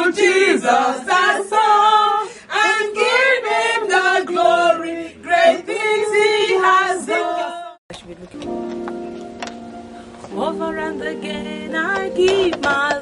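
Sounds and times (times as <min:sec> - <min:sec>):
group singing in unison: 0:00.0 - 0:07.8.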